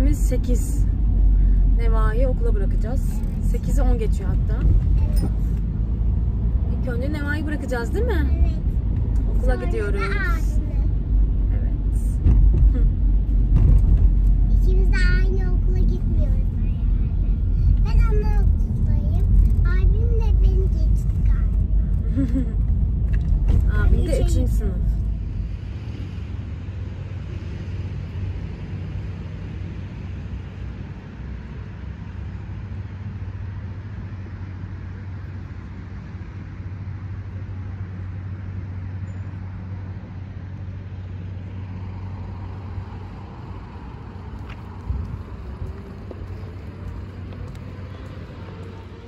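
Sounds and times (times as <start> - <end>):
motor vehicle rumble: 0.0 - 49.0
thump: 12.2 - 12.8.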